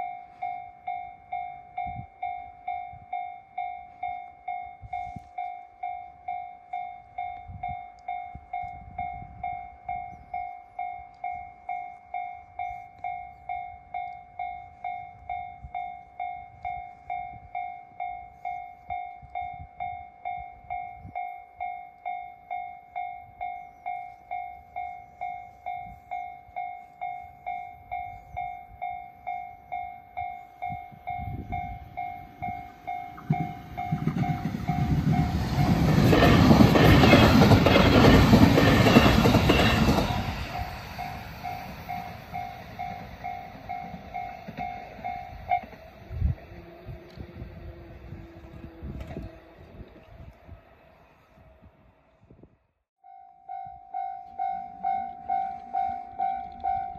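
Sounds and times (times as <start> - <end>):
level-crossing warning bell: 0.0 - 49.7, 53.0 - 56.9
train rumble and wheel clatter: 24.1 - 51.9.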